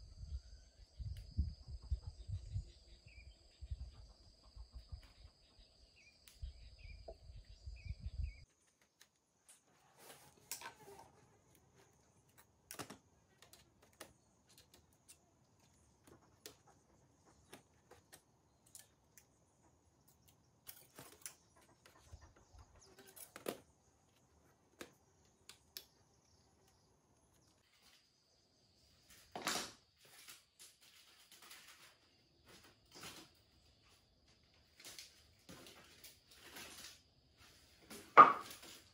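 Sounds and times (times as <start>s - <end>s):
dry bamboo strips clicking: 10.3s - 19.4s, 20.1s - 22.0s, 22.8s - 26.8s.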